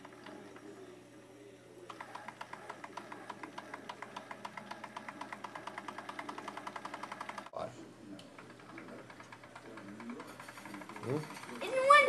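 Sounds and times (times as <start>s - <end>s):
toy steam engine ticking: 1.9s - 7.5s, 8.4s - 12.0s.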